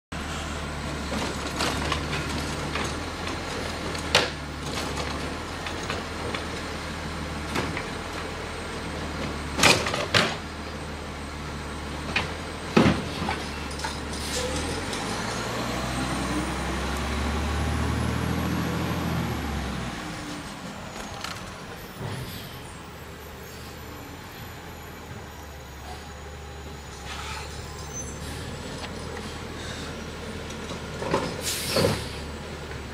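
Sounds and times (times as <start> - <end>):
garbage truck diesel engine: 0.1 - 32.9
cart banging against truck: 9.5 - 10.5, 12.1 - 15.2.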